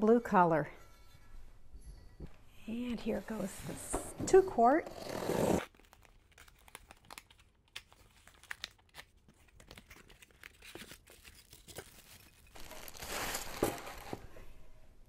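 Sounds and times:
cardboard and tape tearing: 4.9 - 14.3
plastic wrapping crinkling: 5.6 - 14.3.

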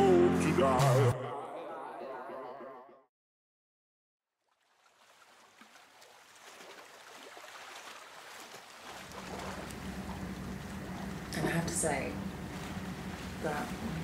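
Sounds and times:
boat engine droning: 0.0 - 2.4, 8.9 - 14.0.

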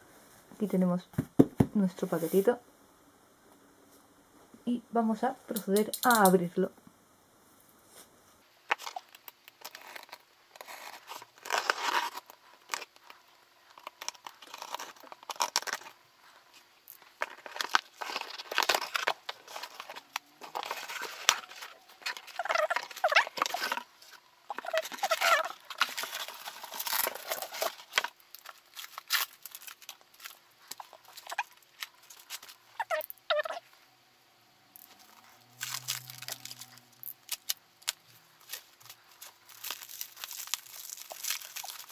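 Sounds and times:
packing tape ripping: 8.7 - 13.1, 13.8 - 16.0, 16.9 - 33.2, 34.8 - 41.9
paper and plastic crinkling: 8.7 - 33.1, 34.8 - 41.9
cardboard scraping and rustling: 9.6 - 13.0, 17.2 - 32.6.

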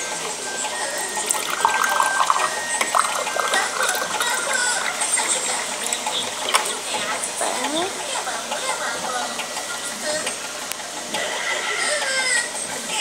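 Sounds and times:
water pouring into a glass: 0.8 - 6.8.

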